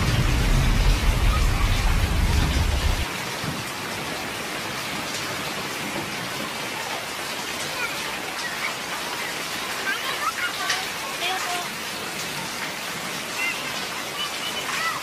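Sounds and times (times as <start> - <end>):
low rumble: 0.0 - 3.1
rain on pavement and foliage: 0.0 - 15.0.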